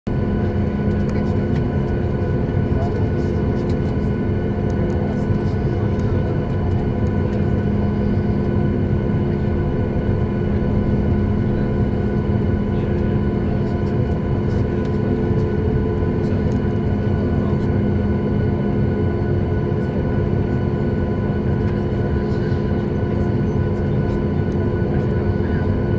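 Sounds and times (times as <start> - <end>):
airliner cabin engine rumble: 0.1 - 25.9.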